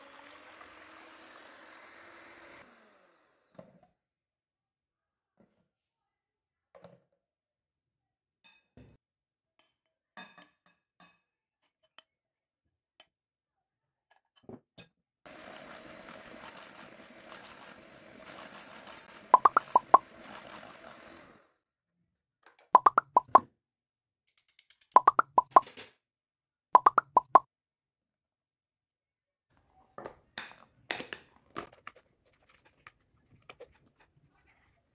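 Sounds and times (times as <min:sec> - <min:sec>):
loud plopping pops: 0:19.4 - 0:20.0, 0:22.8 - 0:23.4, 0:25.0 - 0:25.6, 0:26.8 - 0:27.4.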